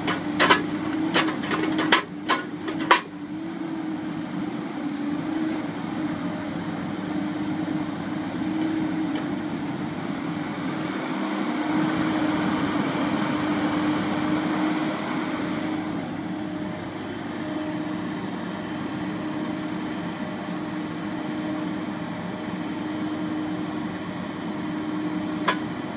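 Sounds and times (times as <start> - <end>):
diesel engine and hydraulics running: 0.0 - 25.9
faint high whine: 16.0 - 25.9.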